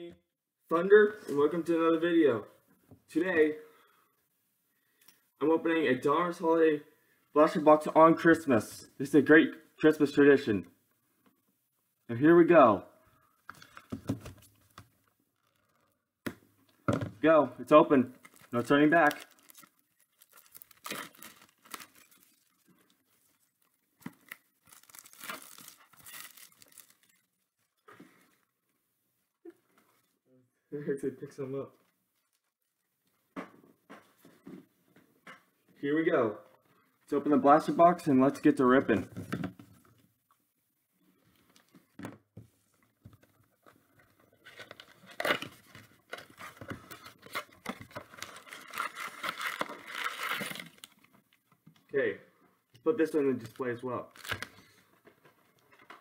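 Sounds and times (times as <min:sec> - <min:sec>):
packaging rustling and tearing: 0:18.2 - 0:27.8, 0:44.3 - 0:51.1, 0:53.4 - 0:54.8.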